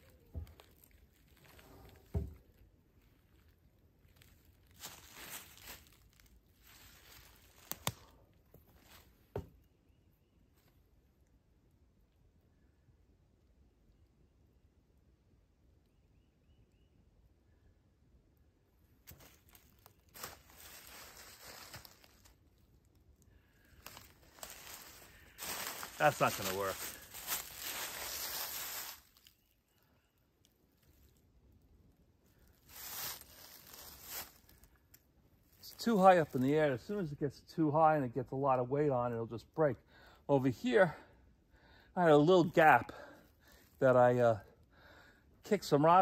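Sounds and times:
log set down thump: 2.1s - 2.5s
footsteps in dry leaves: 4.1s - 8.1s, 19.1s - 22.5s, 23.5s - 29.4s, 32.4s - 34.8s.

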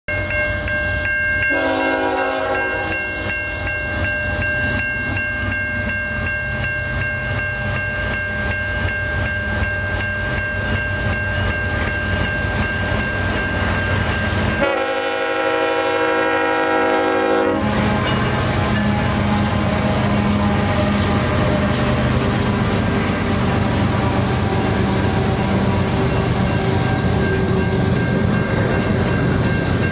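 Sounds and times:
diesel locomotives rumbling: 0.1s - 29.9s
railroad crossing bell ringing: 0.1s - 29.9s
train horn: 1.5s - 3.4s, 14.6s - 27.7s.

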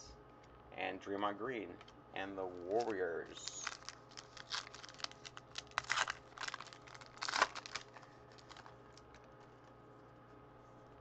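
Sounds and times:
foil wrapper crinkling: 2.5s - 9.4s.

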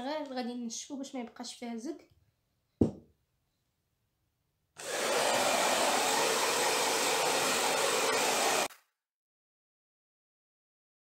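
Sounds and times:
hair dryer blowing: 4.8s - 8.7s.

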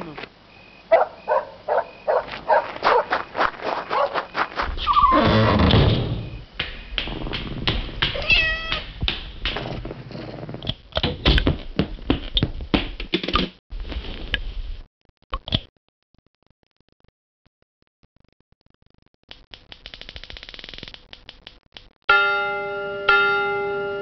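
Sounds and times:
knocks and thumps: 2.9s - 13.6s
cat meow: 8.1s - 8.9s.

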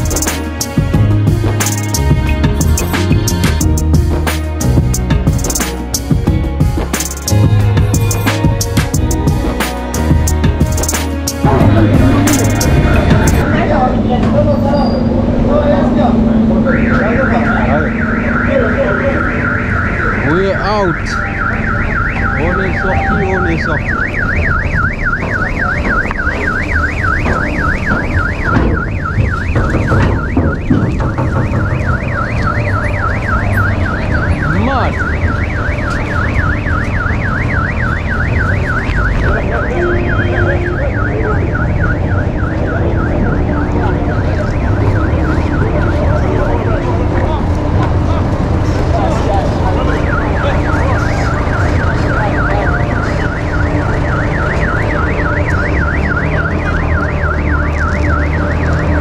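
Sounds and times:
electronic alarm warbling: 10.8s - 15.3s, 16.0s - 47.0s, 49.6s - 59.0s.

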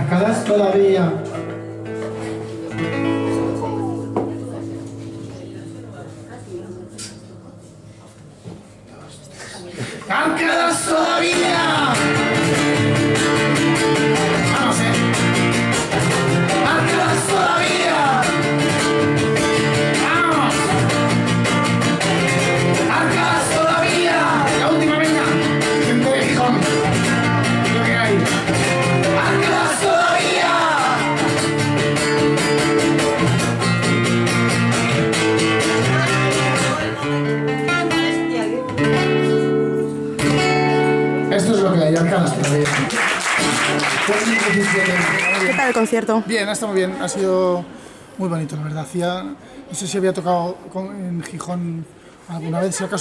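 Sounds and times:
acoustic guitar strumming: 0.4s - 7.2s, 10.2s - 42.3s
man singing: 10.0s - 12.5s, 16.4s - 18.9s, 19.9s - 21.0s, 22.6s - 31.5s.

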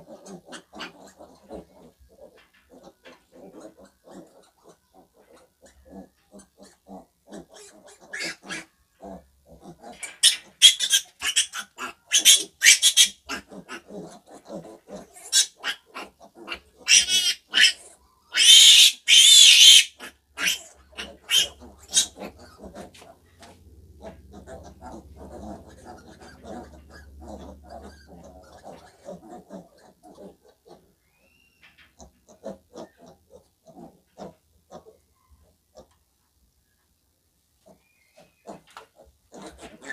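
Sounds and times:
piglet grunting: 0.0s - 31.0s, 32.0s - 35.0s, 37.6s - 39.9s
piglet squealing loudly: 7.6s - 8.7s, 10.0s - 13.8s, 15.2s - 22.6s.

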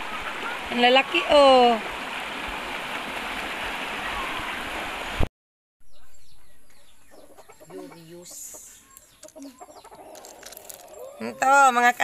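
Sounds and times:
river stream rushing: 0.0s - 5.3s.

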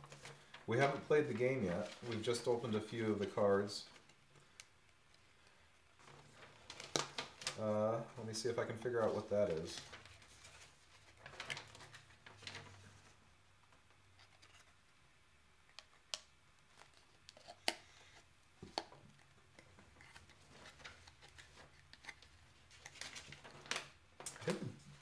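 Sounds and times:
handling cardboard box and counters: 16.7s - 25.0s.

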